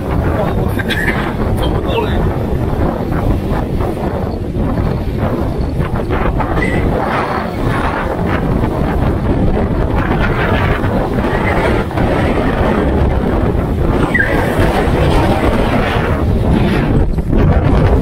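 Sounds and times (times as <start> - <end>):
storm wind on microphone: 0.0 - 18.0.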